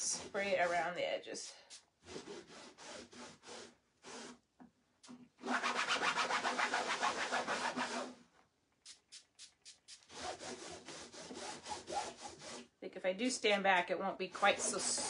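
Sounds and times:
paper towel scrubbing a board: 9.4s - 12.6s.

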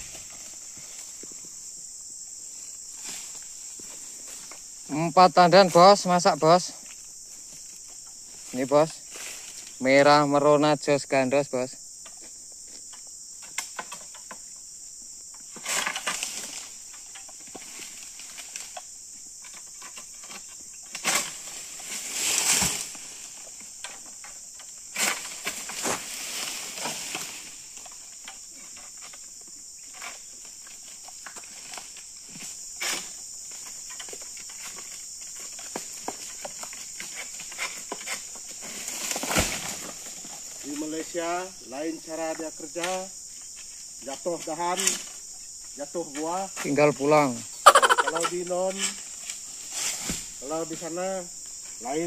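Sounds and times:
high-pitched insect drone: 0.0s - 52.0s
sickle scraping and cracking: 15.4s - 29.2s, 29.8s - 40.8s, 44.1s - 45.2s, 47.7s - 50.4s.

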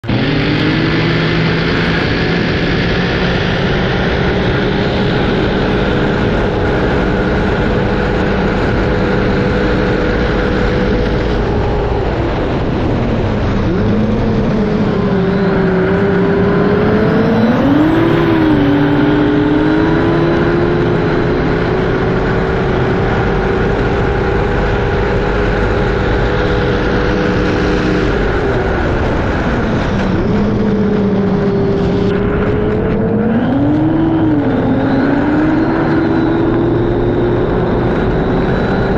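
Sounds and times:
powerboat engine at high revs: 0.0s - 38.9s.

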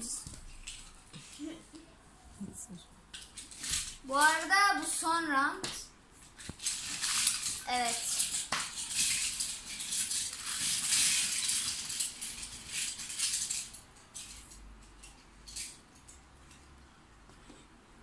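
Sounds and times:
toy cars clinking and rattling: 6.6s - 16.6s.

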